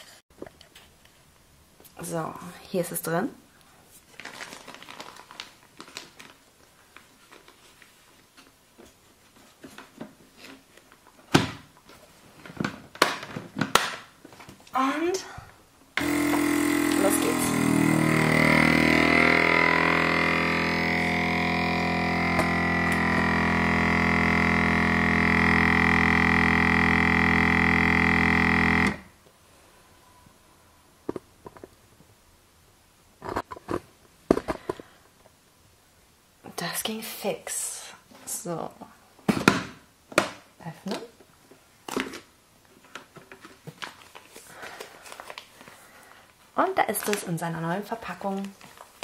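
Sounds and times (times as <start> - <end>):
vacuum sealer pump droning: 16.0 - 29.2.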